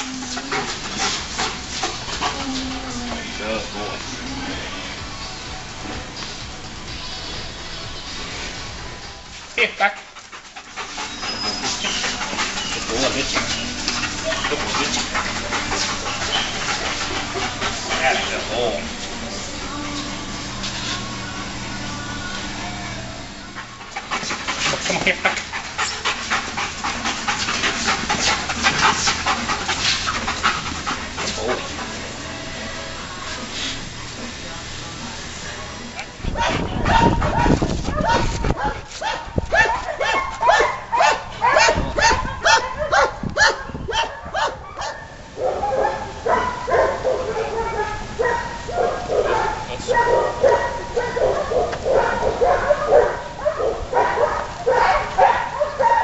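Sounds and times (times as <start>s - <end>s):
dog panting rapidly: 0.0s - 4.4s, 9.6s - 21.1s, 23.6s - 32.8s, 35.9s - 56.0s
dog whining and yipping: 11.1s - 15.2s.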